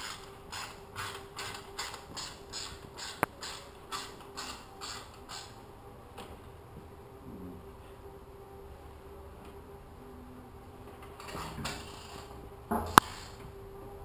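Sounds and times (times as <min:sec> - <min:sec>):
faint steady hum: 0:00.0 - 0:14.0
rasping creaking strokes: 0:11.2 - 0:13.4.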